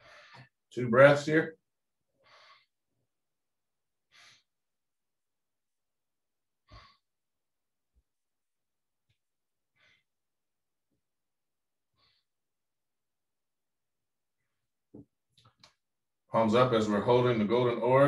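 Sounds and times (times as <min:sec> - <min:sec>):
soft slow breathing: 0:00.0 - 0:00.6, 0:02.1 - 0:02.8, 0:04.0 - 0:04.6, 0:06.6 - 0:07.1, 0:09.7 - 0:10.2, 0:11.9 - 0:12.4.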